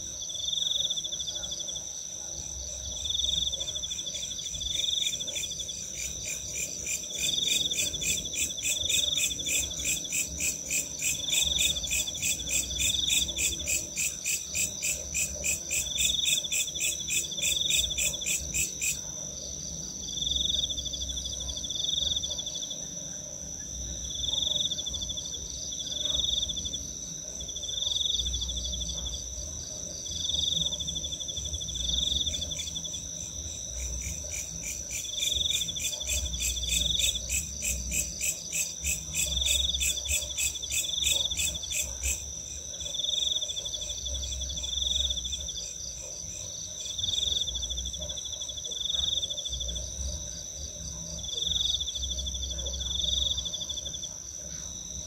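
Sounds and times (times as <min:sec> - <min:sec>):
cricket trill: 0:00.0 - 0:55.0
low insect chirp: 0:00.0 - 0:55.0
fast pulsing insect call: 0:30.1 - 0:49.8.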